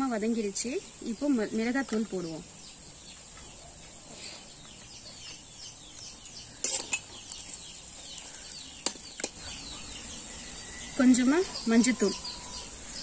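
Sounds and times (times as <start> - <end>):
birds chirping: 0.0 - 13.0
ladle stirring frying onions: 6.5 - 9.5.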